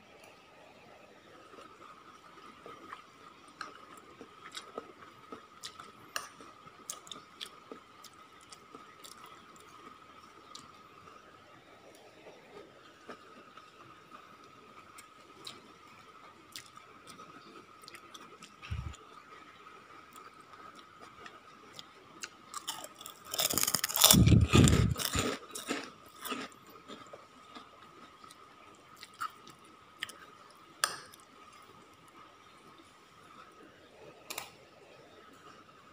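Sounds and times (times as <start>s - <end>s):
faint steady whine: 0.0s - 35.9s
person chewing and crunching: 3.6s - 9.3s, 16.5s - 17.2s, 17.8s - 19.0s, 21.7s - 28.4s, 29.0s - 30.3s.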